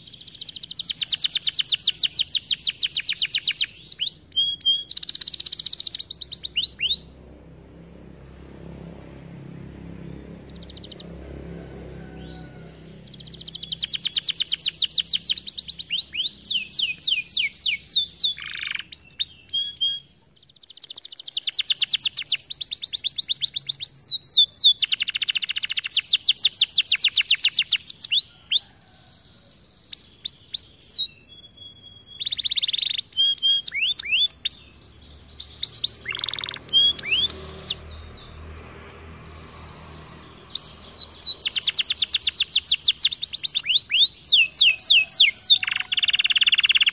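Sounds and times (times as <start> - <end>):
canary singing trills: 0.0 - 46.9.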